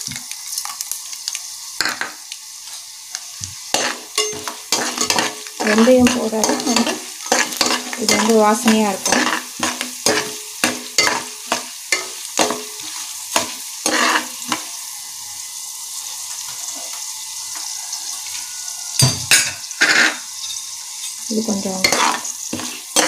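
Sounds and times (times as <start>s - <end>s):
oil popping and crackling: 0.0s - 14.7s
seeds frying in hot oil: 0.0s - 23.0s.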